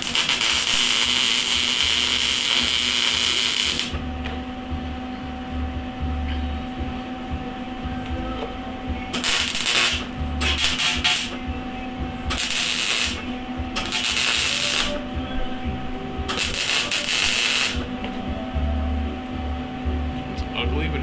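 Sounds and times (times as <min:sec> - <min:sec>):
welding arc crackle and hiss: 0:00.0 - 0:04.4, 0:07.2 - 0:18.2.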